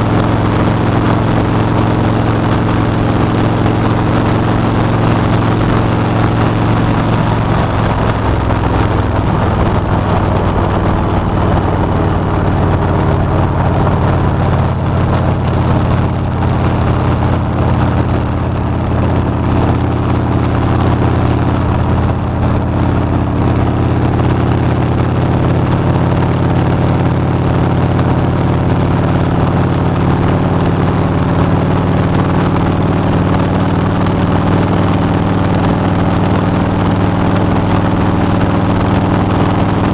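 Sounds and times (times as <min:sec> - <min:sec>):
motorcycle engine cruising: 0:00.0 - 0:39.9
wind rushing: 0:07.2 - 0:18.2.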